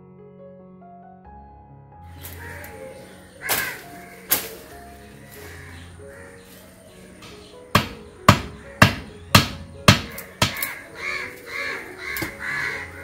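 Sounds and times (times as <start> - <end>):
machete chopping plant stems: 2.2 - 5.7, 7.2 - 10.8, 12.1 - 12.6
crow cawing: 2.2 - 13.0.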